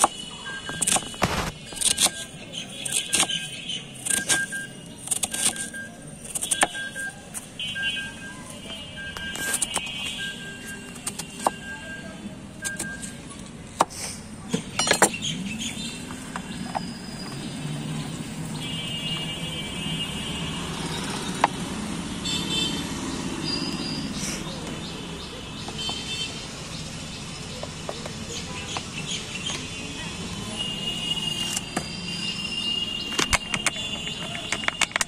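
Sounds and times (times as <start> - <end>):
low traffic rumble: 7.1 - 35.0.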